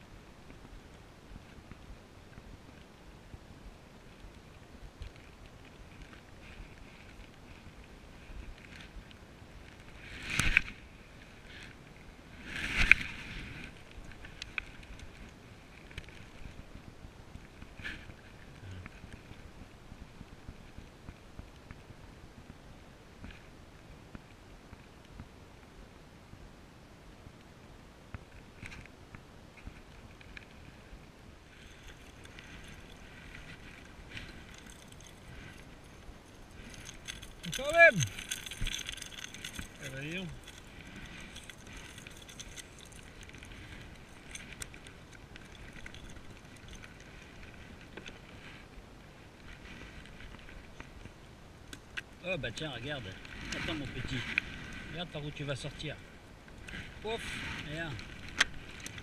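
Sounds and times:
wind and water rumble: 0.0s - 59.0s
faint ticks: 12.7s - 22.6s
reel clicks: 31.6s - 47.1s
fishing reel winding: 36.7s - 43.0s.

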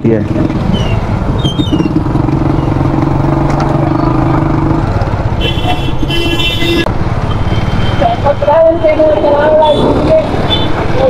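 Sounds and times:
steady engine hum: 0.0s - 11.0s
wind and road noise: 0.0s - 11.0s
motorcycle engine running: 0.2s - 6.8s.

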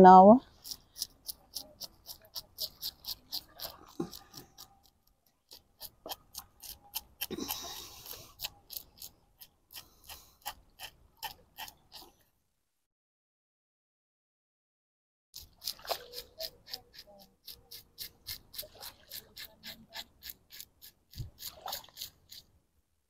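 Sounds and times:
scaler rasping off fish scales: 0.4s - 12.2s, 15.4s - 22.5s.

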